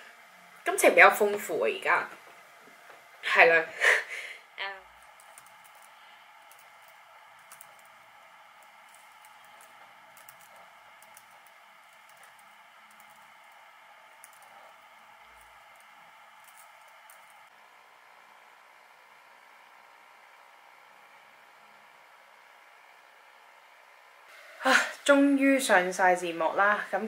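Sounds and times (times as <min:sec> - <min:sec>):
typing on laptop keyboard: 0:05.0 - 0:07.9, 0:08.6 - 0:13.5, 0:14.2 - 0:14.7.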